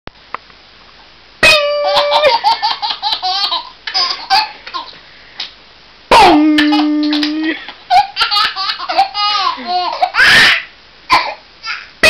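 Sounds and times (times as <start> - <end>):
baby laughing: 1.4 - 5.0, 6.1 - 11.9.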